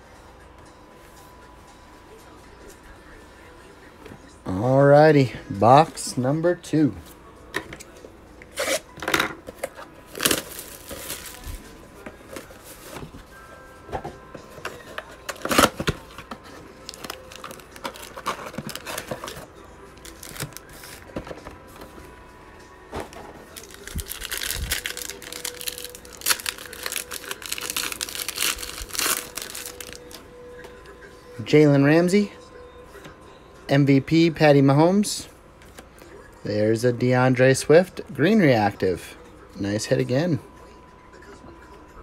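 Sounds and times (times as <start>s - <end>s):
foil pack tearing: 10.1s - 11.6s, 16.8s - 20.8s, 23.5s - 30.2s
wrapper crinkling: 10.1s - 11.7s, 15.2s - 21.0s, 23.5s - 30.2s.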